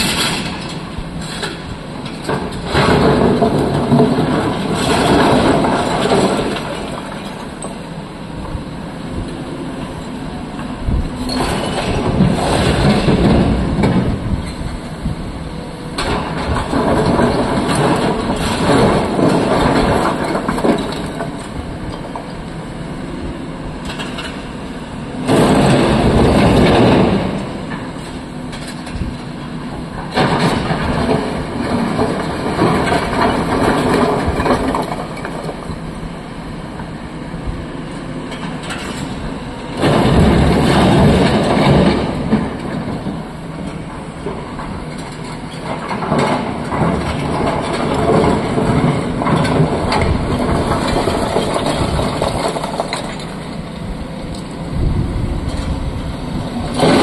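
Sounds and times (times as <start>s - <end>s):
excavator diesel engine under load: 0.0s - 57.0s
rock clattering and grinding: 44.7s - 53.4s.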